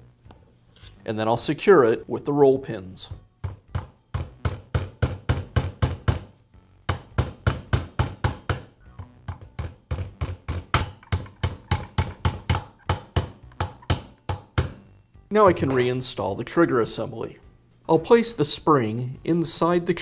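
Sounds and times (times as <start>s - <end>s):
small hammer tapping metal pin: 8.0s - 14.8s.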